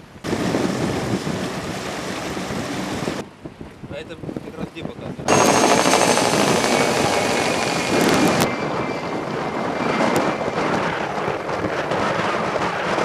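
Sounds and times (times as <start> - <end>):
wind buffeting microphone: 0.0 - 13.0
helicopter rotor and engine: 5.3 - 8.6.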